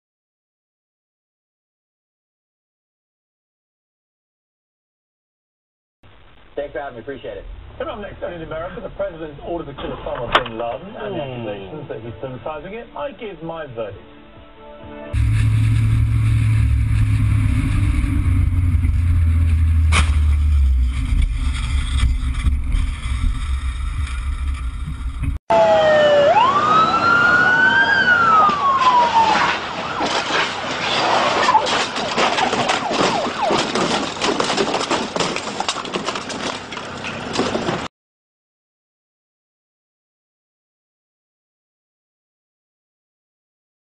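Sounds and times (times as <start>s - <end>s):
vehicle rumble: 7.2s - 10.9s, 15.2s - 37.9s
siren wailing: 25.5s - 34.0s.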